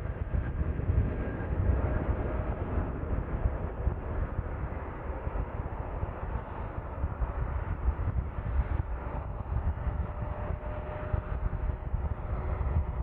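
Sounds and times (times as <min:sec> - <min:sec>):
jet engines roaring: 0:00.0 - 0:13.0.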